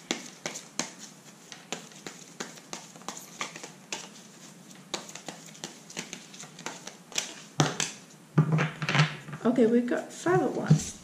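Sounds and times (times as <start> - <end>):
cards being shuffled: 0.0 - 8.1.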